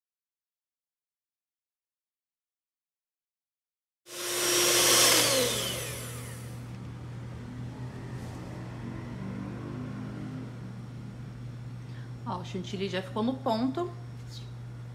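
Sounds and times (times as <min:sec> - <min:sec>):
stand mixer motor whine: 0:04.1 - 0:06.8.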